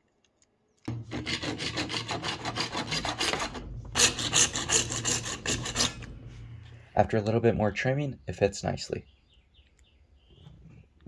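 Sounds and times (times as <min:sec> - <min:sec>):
hand saw cutting plastic pipe: 0:00.9 - 0:06.2.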